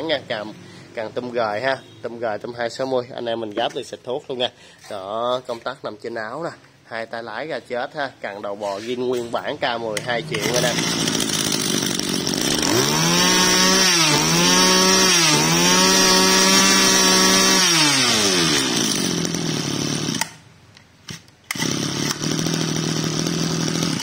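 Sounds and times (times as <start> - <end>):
brush cutter engine revving and idling: 9.9 - 20.4, 21.1 - 24.0.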